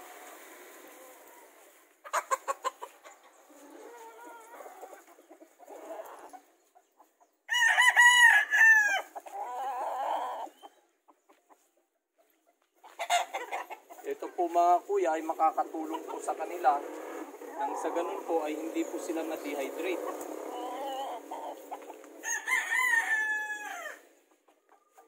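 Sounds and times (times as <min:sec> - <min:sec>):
rooster clucking: 0:00.8 - 0:25.0
rooster crowing: 0:07.5 - 0:10.5, 0:20.4 - 0:24.1.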